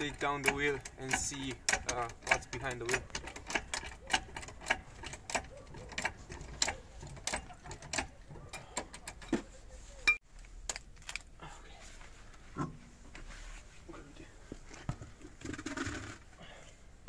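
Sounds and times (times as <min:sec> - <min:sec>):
trolley jack pump clicks: 0:00.0 - 0:09.3.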